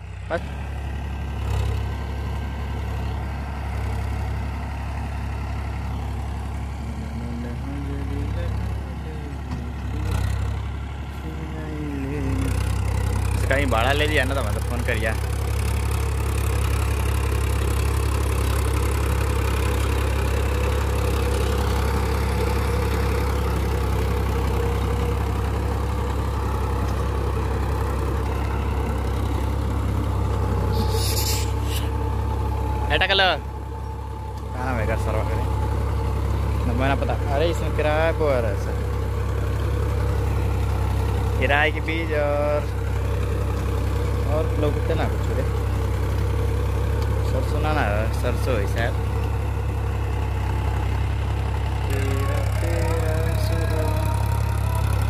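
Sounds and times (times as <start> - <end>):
tractor diesel engine droning: 0.0 - 55.0
rotavator tilling dry soil: 12.4 - 55.0.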